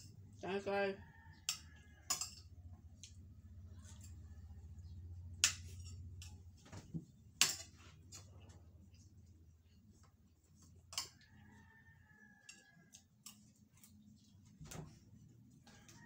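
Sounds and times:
spoon clinking on ceramic plate: 1.5s - 2.6s.

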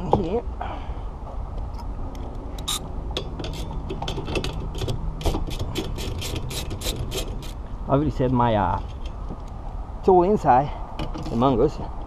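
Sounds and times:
hand ratchet clicking: 2.6s - 2.8s.

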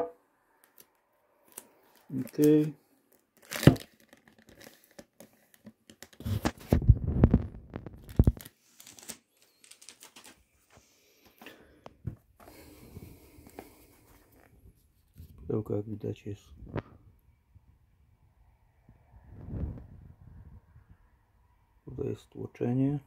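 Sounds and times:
plastic film tearing and crinkling: 1.4s - 10.5s.

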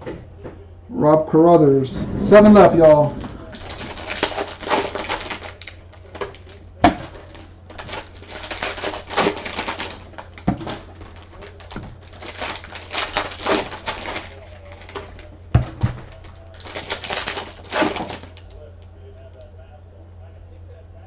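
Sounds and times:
plastic wrap crinkling: 3.2s - 18.6s
packs knocking on a table: 8.7s - 12.5s, 13.1s - 18.4s.

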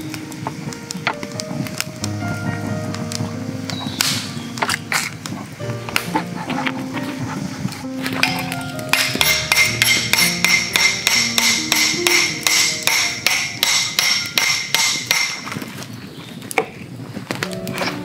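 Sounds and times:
hammer clanking on metal: 8.2s - 15.7s.

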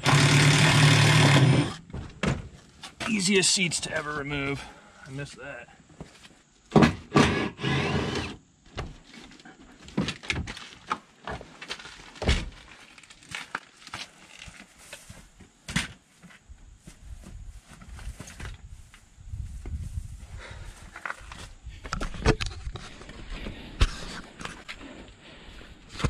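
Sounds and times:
knocks and thunks of seat: 1.9s - 2.6s.

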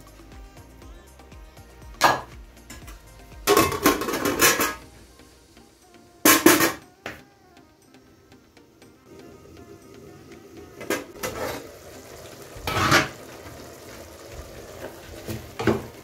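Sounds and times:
soft background music: 0.0s - 16.0s
wooden spoon knocking on metal pot: 2.0s - 4.8s
metal lid clattering: 3.5s - 4.8s, 6.3s - 6.8s, 12.6s - 13.2s.

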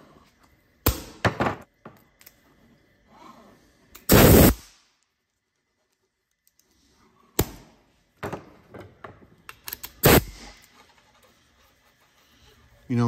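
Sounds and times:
short loud air burst: 4.1s - 4.8s, 10.0s - 10.6s.

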